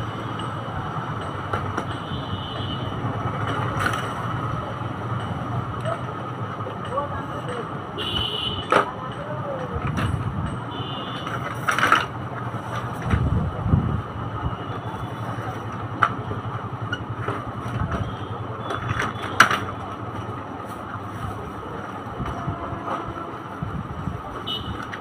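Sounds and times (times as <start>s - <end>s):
plastic and metal frame clicks and knocks: 8.6s - 13.3s.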